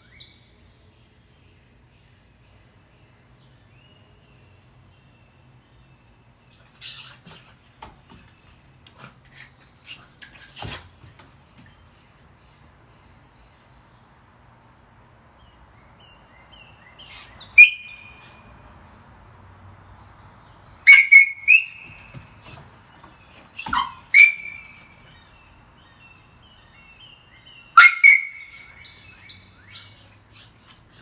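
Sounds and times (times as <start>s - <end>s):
dog whining: 6.4s - 11.2s, 17.0s - 18.7s, 27.8s - 31.0s
dog scratching at door: 6.5s - 11.8s.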